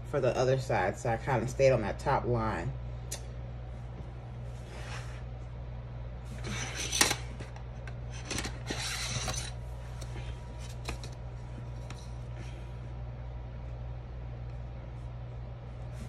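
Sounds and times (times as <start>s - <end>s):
steady low hum: 0.0s - 16.0s
plastic ruler sliding on paper: 8.6s - 9.6s.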